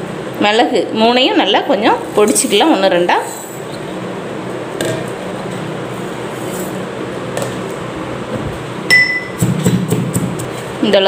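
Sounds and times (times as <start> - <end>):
pestle striking metal mortar: 8.9 - 10.5.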